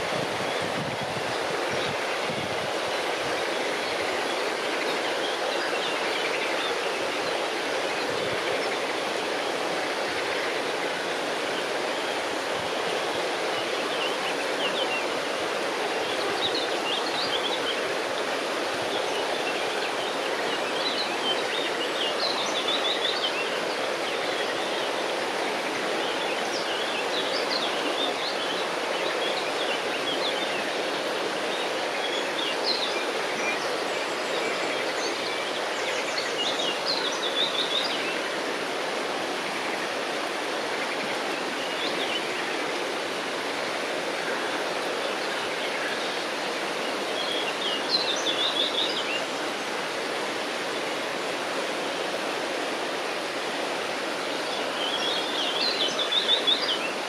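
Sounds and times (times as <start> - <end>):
river water rushing: 0.0 - 57.0.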